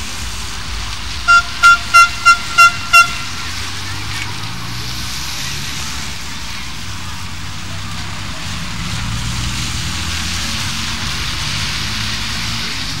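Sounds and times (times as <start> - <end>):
street and crowd noise: 0.0 - 13.0.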